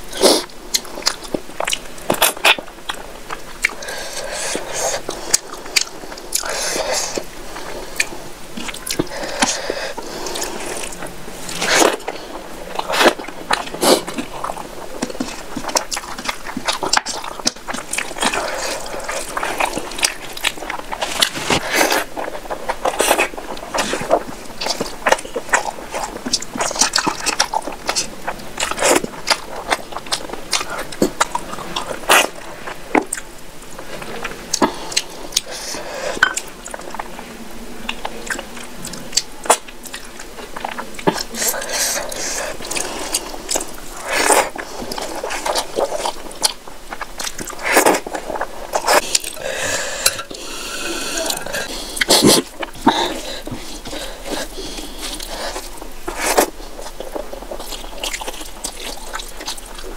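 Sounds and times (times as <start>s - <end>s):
wet chewing and lip smacks: 37.9s - 49.4s, 51.2s - 59.9s.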